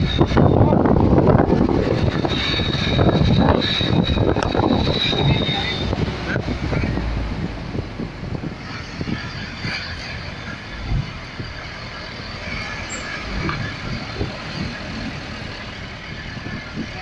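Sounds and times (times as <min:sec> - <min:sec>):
pickup truck engine and road noise: 0:00.0 - 0:17.0
low thumps: 0:00.3 - 0:09.8.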